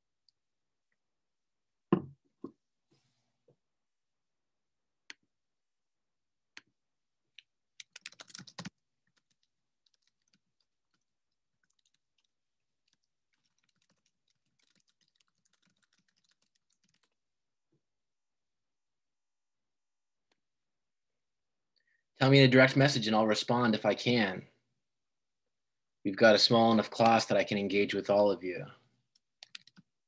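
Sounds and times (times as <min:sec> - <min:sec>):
faint keyboard typing: 0:07.3 - 0:17.2, 0:29.1 - 0:30.0.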